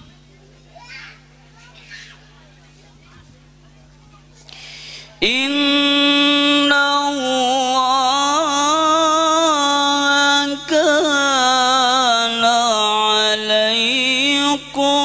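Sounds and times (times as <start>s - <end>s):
man chanting recitation into microphone: 5.2s - 15.0s.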